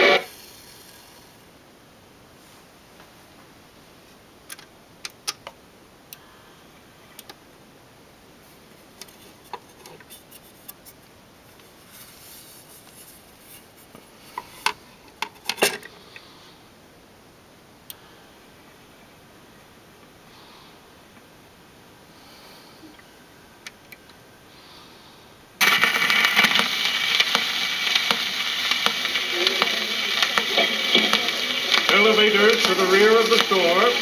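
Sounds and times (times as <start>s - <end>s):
record and turntable clicks and knocks: 25.6s - 34.0s.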